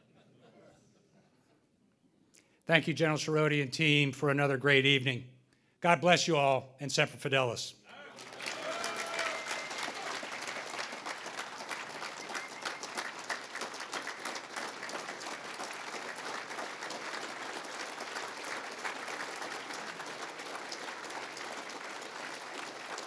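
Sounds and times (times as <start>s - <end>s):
audience applauding: 8.0s - 23.0s.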